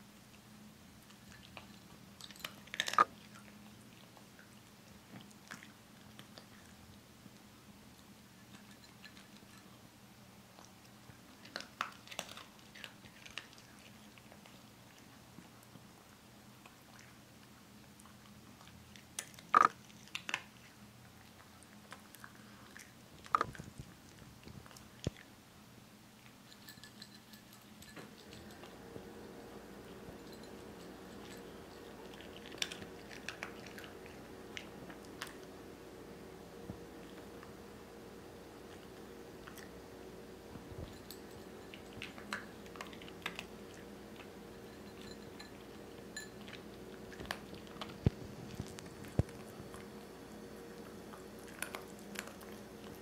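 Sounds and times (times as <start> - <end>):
dog crunching dry kibble: 1.0 - 4.2, 10.5 - 15.8, 18.0 - 25.3, 26.2 - 37.6, 38.2 - 53.0.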